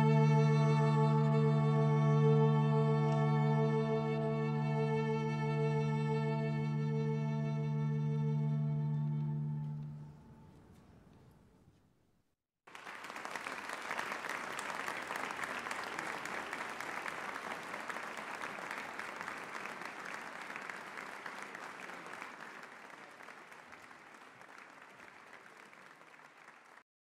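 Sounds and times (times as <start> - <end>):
audience applauding: 12.7 - 26.8.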